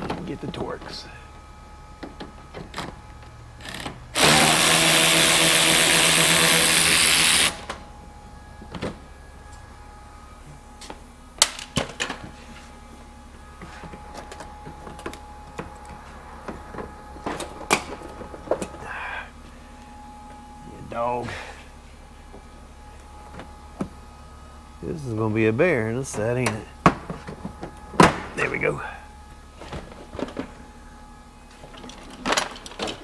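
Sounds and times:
cordless drill spinning: 0:03.6 - 0:07.7.

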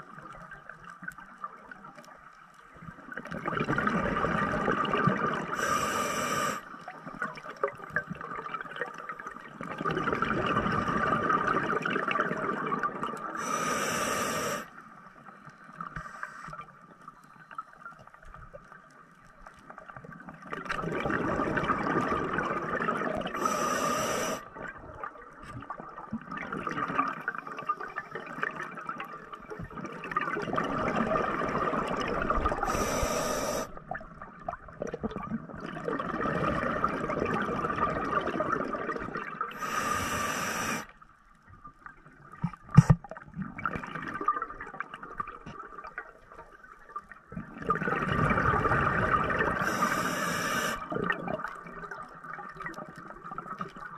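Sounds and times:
scuba regulator hissing inhalations: 0:05.5 - 0:06.7, 0:13.4 - 0:14.7, 0:23.3 - 0:24.5, 0:32.6 - 0:33.8, 0:39.5 - 0:40.9, 0:49.6 - 0:50.9.

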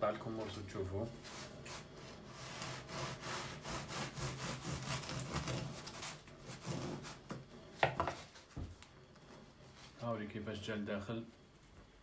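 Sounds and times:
bread knife sawing through crust: 0:01.2 - 0:07.4.

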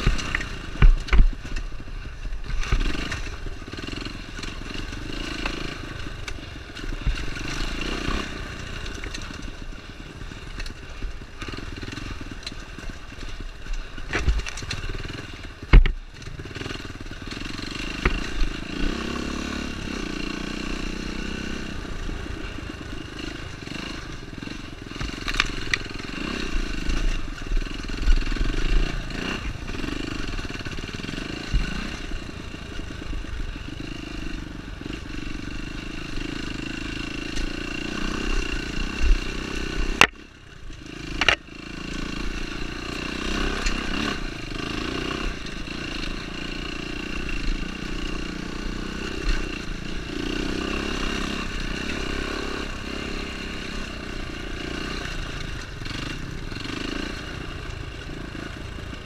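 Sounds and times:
dirt bike engine running: 0:00.0 - 0:59.0.

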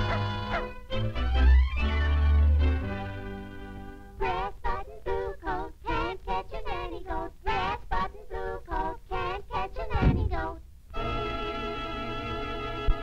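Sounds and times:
cartoon voices singing: 0:04.2 - 0:10.6.

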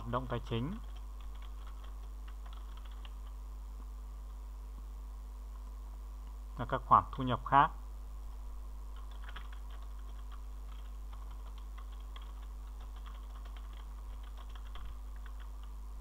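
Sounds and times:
low electrical hum: 0:00.0 - 0:16.0
keyboard typing: 0:00.7 - 0:03.4, 0:08.9 - 0:15.7.

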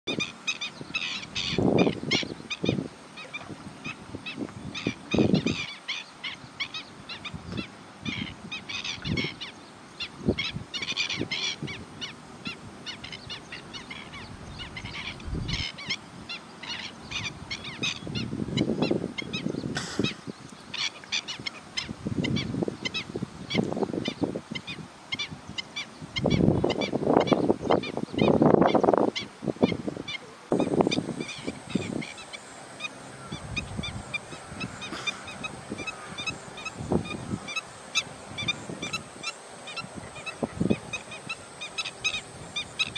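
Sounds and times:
high-pitched bird calls: 0:00.1 - 0:42.9
low honking croaks: 0:30.5 - 0:42.9.

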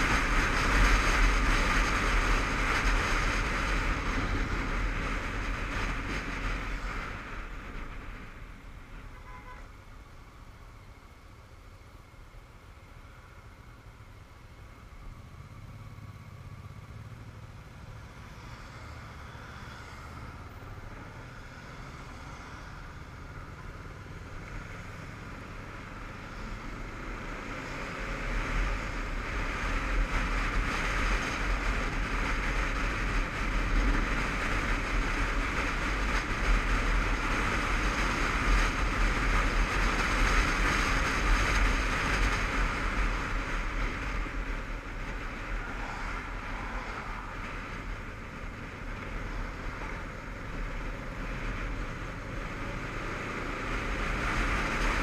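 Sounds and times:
motorcycle engine rumble: 0:00.0 - 0:55.0
wind rush: 0:25.9 - 0:55.0.

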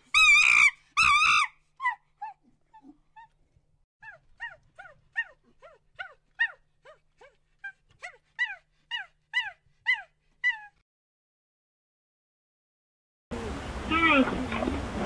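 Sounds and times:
animal yelping: 0:00.1 - 0:03.3, 0:04.0 - 0:10.8.

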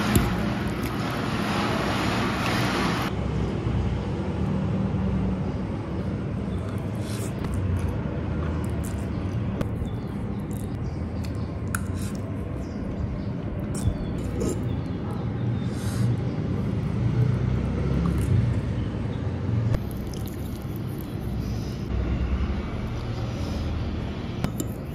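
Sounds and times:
person eating noodles: 0:06.6 - 0:12.6, 0:13.5 - 0:15.0, 0:19.8 - 0:21.9.

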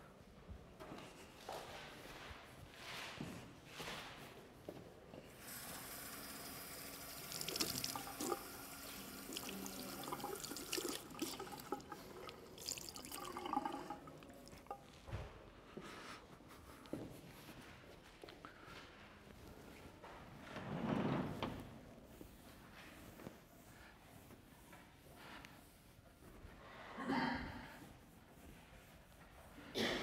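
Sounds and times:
tap water running into sink: 0:05.4 - 0:14.8.

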